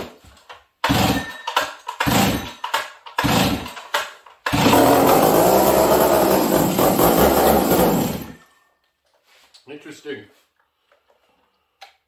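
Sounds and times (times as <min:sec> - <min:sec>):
chainsaw engine running: 0:00.9 - 0:01.2, 0:02.0 - 0:02.5, 0:03.2 - 0:03.7, 0:04.5 - 0:08.4
starter rope pulls: 0:04.5 - 0:08.4.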